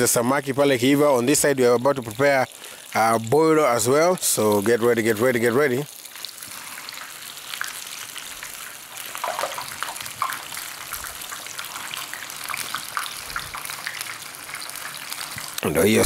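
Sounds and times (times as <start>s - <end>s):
fish deep-frying in hot oil: 0.0s - 16.0s
oil crackling and popping: 0.0s - 16.0s.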